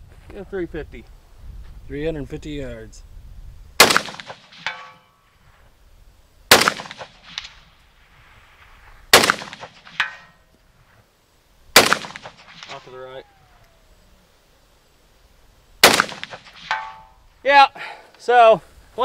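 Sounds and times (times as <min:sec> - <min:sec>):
rifle shots: 0:03.8 - 0:05.0, 0:06.5 - 0:07.7, 0:09.1 - 0:10.2, 0:11.7 - 0:13.0, 0:15.8 - 0:17.1
bullet striking steel target: 0:03.8 - 0:05.2, 0:09.2 - 0:10.4, 0:15.8 - 0:17.2.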